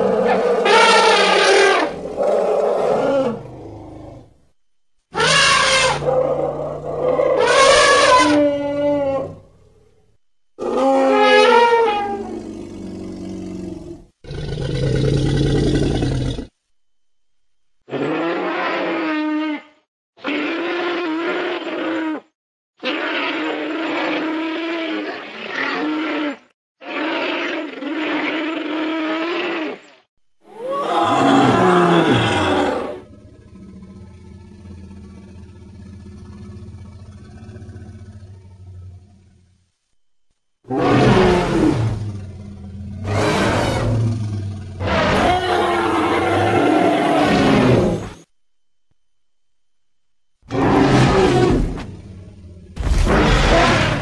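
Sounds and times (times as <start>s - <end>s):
animal roaring: 0.0s - 4.3s, 5.2s - 10.0s, 10.6s - 16.5s, 30.5s - 39.5s, 40.7s - 48.3s, 50.5s - 54.0s.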